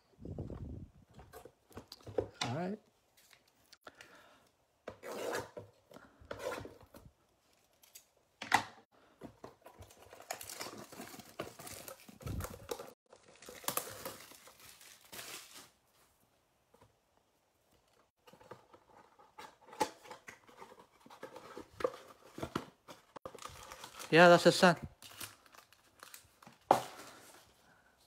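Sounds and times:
plastic crinkling: 0:09.8 - 0:15.9, 0:23.2 - 0:27.5
packaging ripping: 0:10.2 - 0:15.8, 0:25.0 - 0:26.4.

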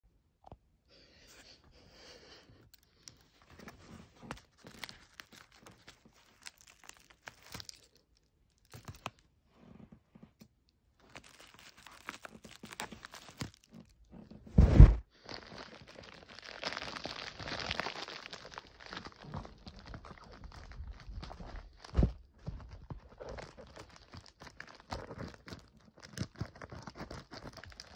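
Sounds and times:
plastic bag crinkling and tearing: 0:03.0 - 0:09.2, 0:11.0 - 0:14.0, 0:14.7 - 0:27.9
loud thump: 0:14.6 - 0:15.0.

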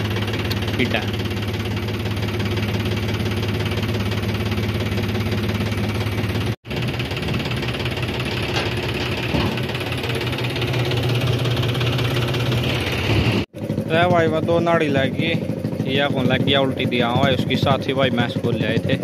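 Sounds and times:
hydraulics raising trailer bed: 0:00.0 - 0:13.5
tractor engine running: 0:00.0 - 0:19.0.

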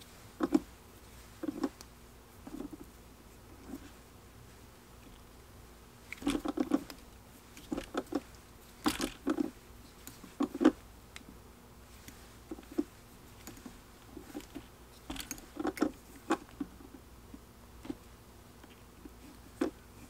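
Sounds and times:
faint steady hum: 0:00.0 - 0:20.0
bobbin and thread clicks and rustles: 0:06.0 - 0:11.3, 0:12.0 - 0:17.0.

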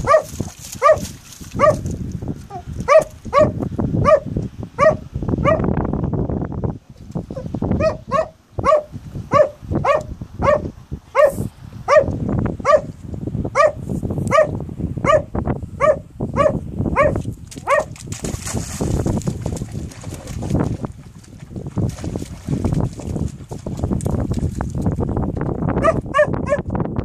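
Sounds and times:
small dog barking: 0:00.0 - 0:01.8, 0:02.5 - 0:05.6, 0:07.4 - 0:12.9, 0:13.6 - 0:17.9, 0:25.8 - 0:26.7
water sloshing and splashing: 0:00.0 - 0:03.4, 0:17.3 - 0:25.2.

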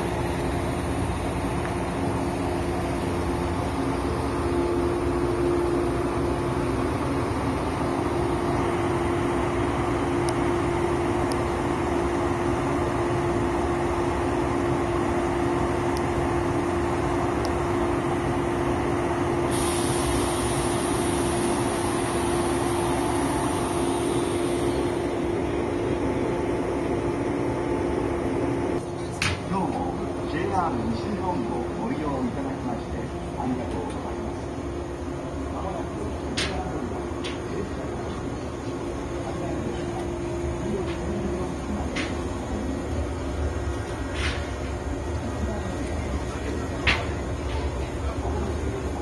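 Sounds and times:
electric train humming: 0:00.0 - 0:49.0
high hiss: 0:19.4 - 0:25.6.

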